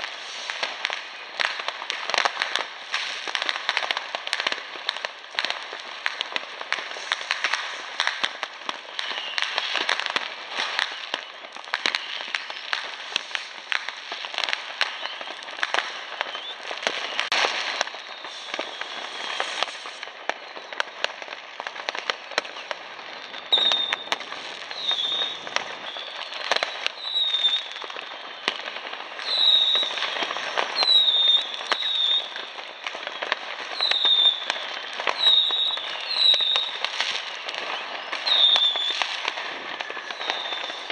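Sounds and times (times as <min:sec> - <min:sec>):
falling firework whistles: 0:00.0 - 0:40.9
fireworks crackling and banging: 0:00.0 - 0:40.9.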